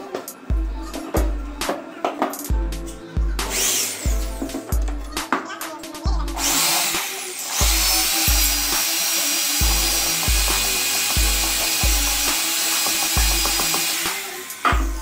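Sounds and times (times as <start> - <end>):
background music with bass beat: 0.3 - 6.5, 9.6 - 12.4, 13.2 - 15.0
electric drill boring into wood: 3.5 - 4.2, 6.4 - 15.0.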